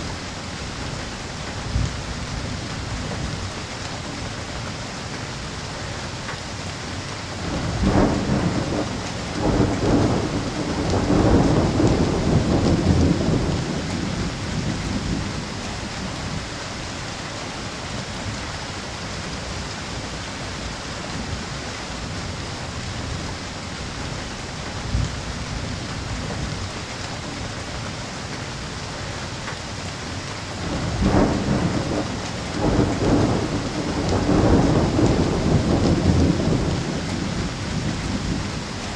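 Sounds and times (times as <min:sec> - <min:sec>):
steady rain: 0:00.0 - 0:38.9
thunder rolling: 0:07.4 - 0:16.1, 0:30.6 - 0:38.7.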